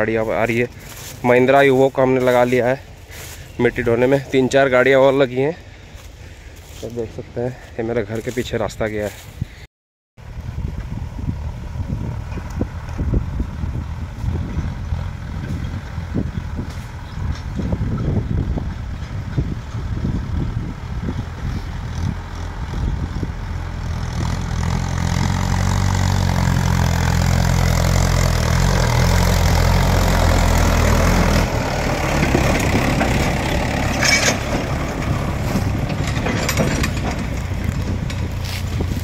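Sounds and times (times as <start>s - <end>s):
tractor diesel engine: 0.0s - 9.4s, 10.2s - 39.0s
trolley clatter: 30.7s - 39.0s.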